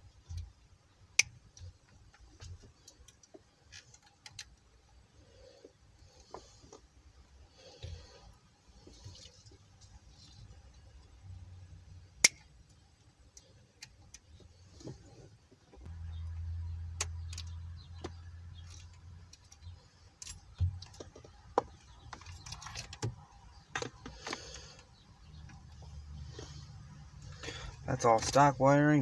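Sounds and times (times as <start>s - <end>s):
wires and connectors rattling: 13.3s - 26.6s.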